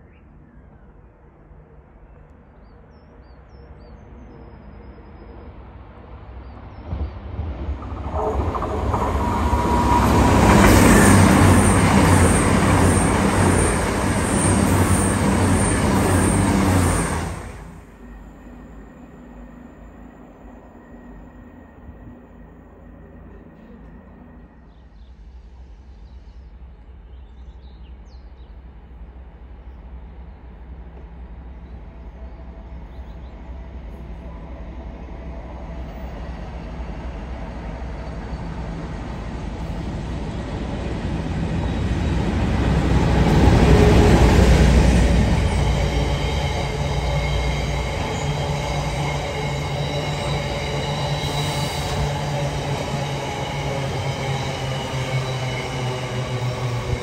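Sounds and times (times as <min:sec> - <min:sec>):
diesel locomotive passing: 0:04.0 - 0:27.2, 0:27.9 - 0:57.0
high wheel squeal: 0:45.4 - 0:57.0.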